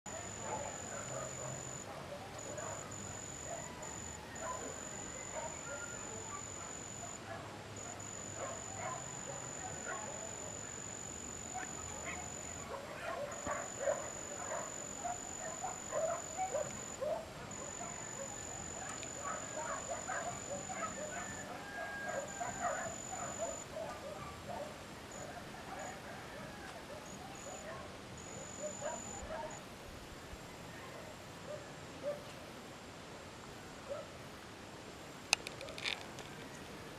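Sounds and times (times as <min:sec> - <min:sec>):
high insect trill: 0:00.1 - 0:01.8, 0:02.4 - 0:07.2, 0:07.8 - 0:23.6
distant dogs barking: 0:00.1 - 0:29.6, 0:30.7 - 0:32.4.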